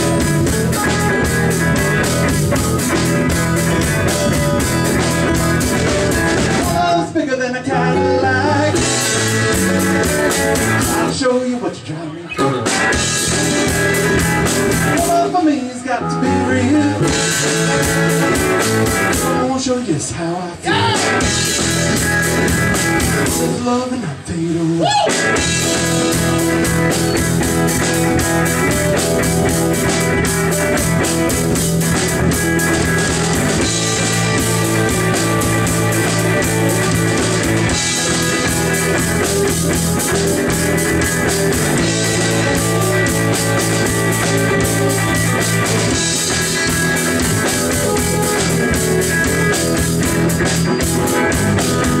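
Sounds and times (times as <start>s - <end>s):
sliding guitar notes: 0.0s - 6.9s, 12.2s - 19.5s, 25.2s - 52.0s
live rock band playing: 0.0s - 52.0s.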